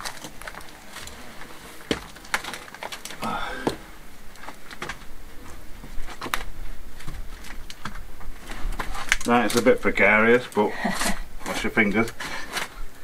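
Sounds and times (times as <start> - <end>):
canes and rubble knocking: 0.0 - 5.1.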